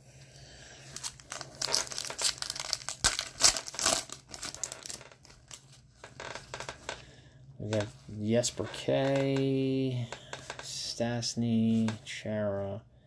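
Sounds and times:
cards rustling: 0:00.8 - 0:06.7
wrapper crinkling: 0:00.8 - 0:07.0.

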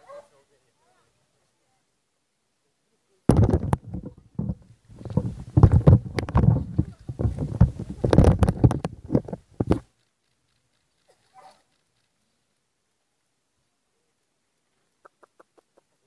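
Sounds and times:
camera handling rumble and knocks: 0:03.3 - 0:09.9.

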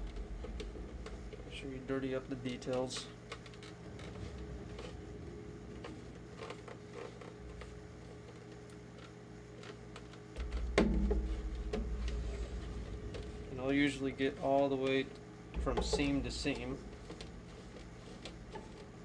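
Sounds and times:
low rumble: 0:00.0 - 0:02.4, 0:03.8 - 0:06.4, 0:10.4 - 0:18.6
steady low hum: 0:00.0 - 0:19.0
plastic knocks: 0:10.4 - 0:13.4, 0:15.6 - 0:18.9.

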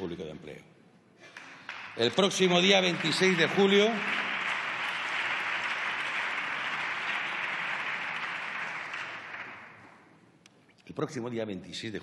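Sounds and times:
crowd applauding: 0:01.3 - 0:10.0.

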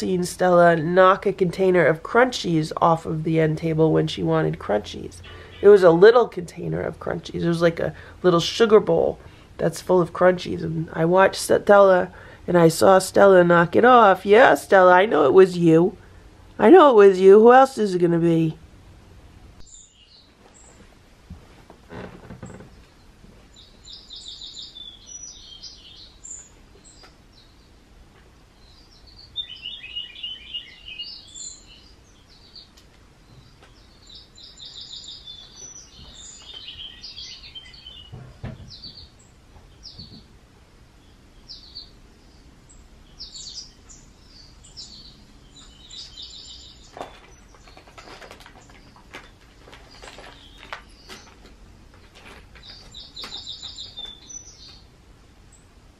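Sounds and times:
small birds chirping: 0:00.0 - 0:18.0, 0:19.6 - 0:20.9, 0:21.9 - 0:55.8.

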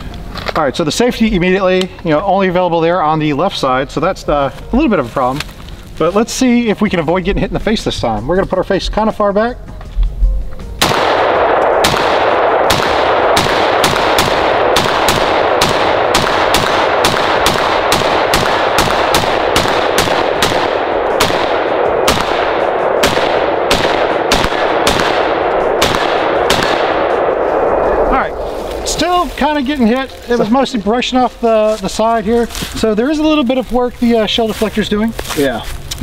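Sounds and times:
rapid rifle fire: 0:10.8 - 0:27.8.

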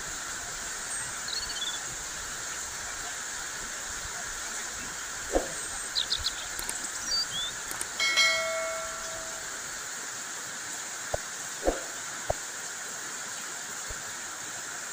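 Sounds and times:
heavy rain on leaves: 0:00.0 - 0:08.0
bell-like chime: 0:08.0 - 0:09.6.

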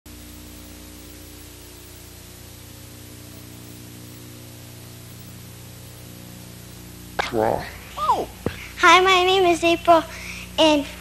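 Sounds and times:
tape hiss: 0:00.0 - 0:11.0
low electrical hum: 0:00.1 - 0:11.0.

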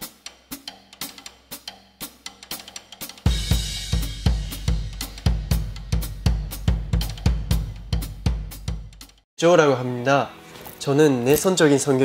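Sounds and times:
fast drum-kit beat: 0:00.0 - 0:09.2.

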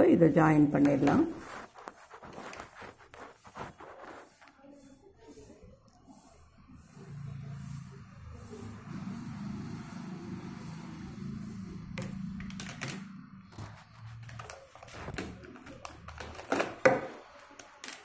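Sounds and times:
marker pens clicking and tapping: 0:00.7 - 0:04.6, 0:11.7 - 0:18.0.

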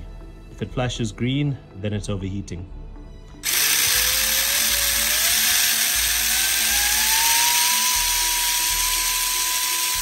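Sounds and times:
electric motor whine: 0:03.4 - 0:10.0.

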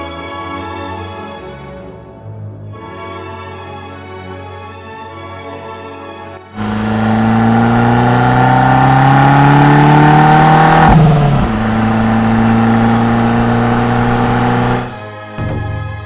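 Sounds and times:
car engine accelerating: 0:06.6 - 0:15.0.

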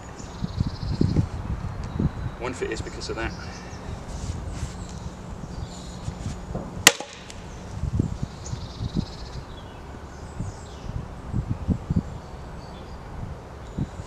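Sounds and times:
dull knocks of axe in wood: 0:06.6 - 0:07.2
axe striking log: 0:06.8 - 0:07.4.

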